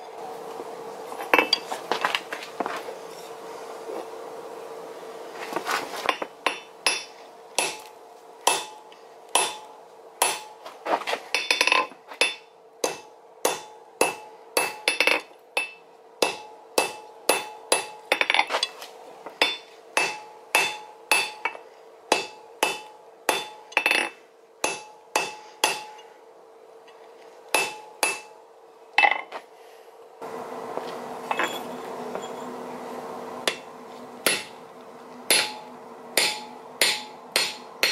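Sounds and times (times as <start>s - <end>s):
steady hum: 0.0s - 37.9s
hammer striking metal on anvil: 6.5s - 10.6s, 11.3s - 18.4s, 19.4s - 26.1s, 27.5s - 28.4s, 33.5s - 34.6s, 35.3s - 37.9s.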